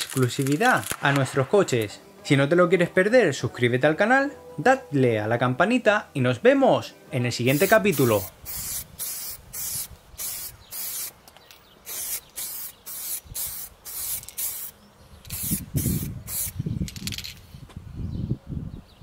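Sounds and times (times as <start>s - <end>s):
spray paint can hissing: 7.5s - 11.2s, 11.8s - 17.2s.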